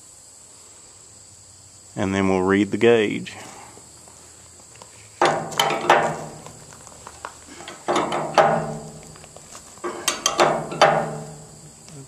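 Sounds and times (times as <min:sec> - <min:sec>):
wrench clicking on bolt: 0:10.0 - 0:10.9.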